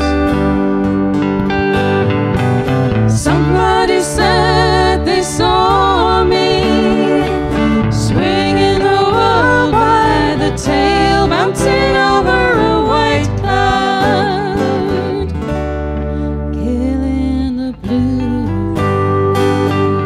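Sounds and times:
electric bass guitar: 0:00.0 - 0:20.0
electric guitar: 0:00.0 - 0:20.0
strummed acoustic guitar: 0:00.0 - 0:20.0
women singing with vibrato: 0:03.0 - 0:15.5, 0:16.5 - 0:20.0.

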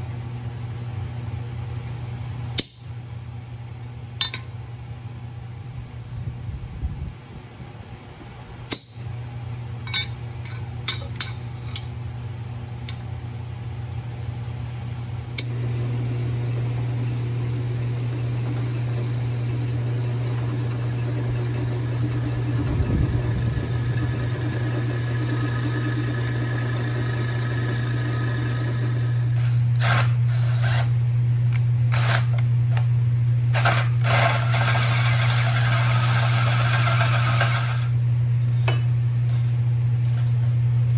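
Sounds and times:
electric drill boring steel: 0:18.4 - 0:30.9, 0:33.5 - 0:38.0.

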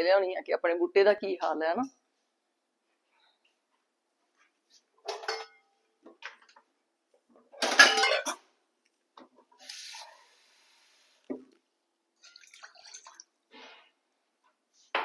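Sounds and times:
metal pots and utensils clanking: 0:05.1 - 0:05.6, 0:07.6 - 0:08.4.

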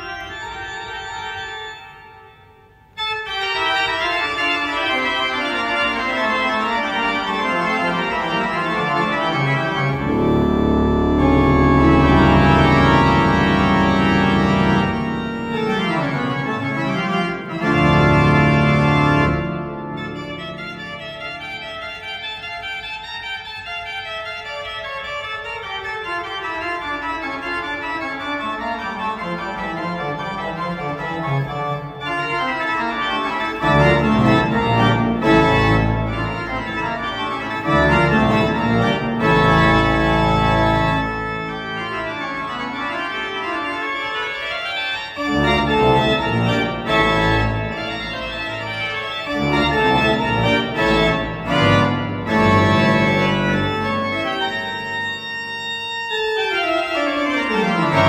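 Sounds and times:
pipe organ playing: 0:00.0 - 0:58.0
deep organ bass notes: 0:04.1 - 0:21.8, 0:28.7 - 0:43.7, 0:45.2 - 0:55.4, 0:56.8 - 0:58.0.

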